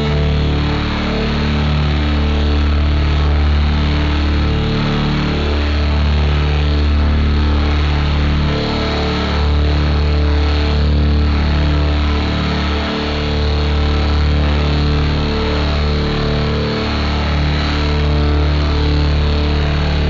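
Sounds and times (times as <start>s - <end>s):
distorted electric guitar feedback: 4.4s - 20.0s.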